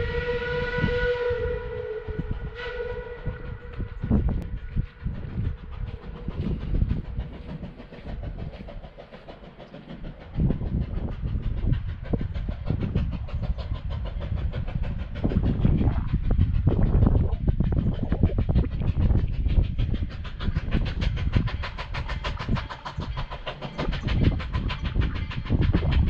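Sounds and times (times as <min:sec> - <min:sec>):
steam locomotive chuffing: 0:00.0 - 0:26.0
low rumble: 0:10.3 - 0:26.0.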